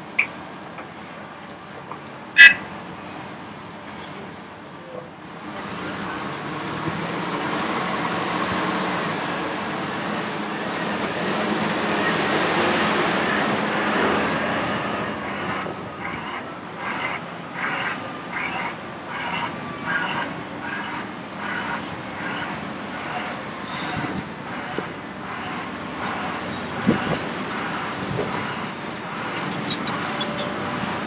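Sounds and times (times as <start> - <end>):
high engine whine: 7.8 - 31.0
diesel truck engine pulling away: 19.3 - 31.0.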